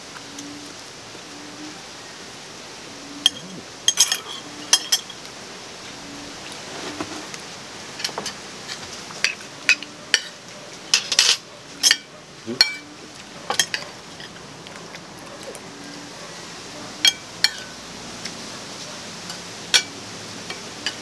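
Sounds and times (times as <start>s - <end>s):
cutlery clinking on plates: 3.2s - 5.2s, 9.2s - 12.8s, 19.3s - 19.9s, 20.5s - 21.0s.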